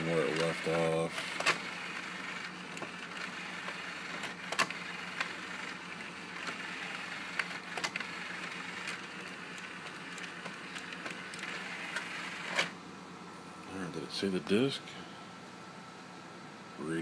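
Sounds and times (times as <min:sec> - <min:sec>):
small motor whirring: 0:00.2 - 0:12.7.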